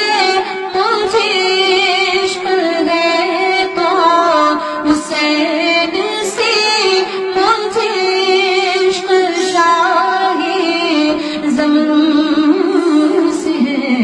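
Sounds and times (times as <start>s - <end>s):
woman singing into microphone: 0.0s - 14.0s.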